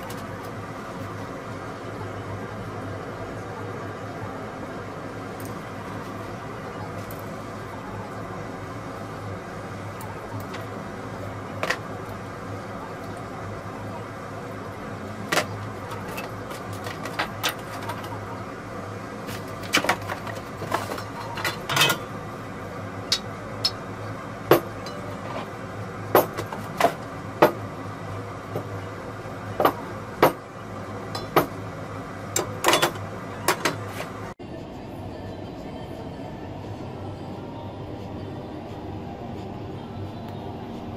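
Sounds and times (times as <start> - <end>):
steady low hum: 0.0 - 40.9
metal parts clinking on wooden bench: 19.9 - 22.1.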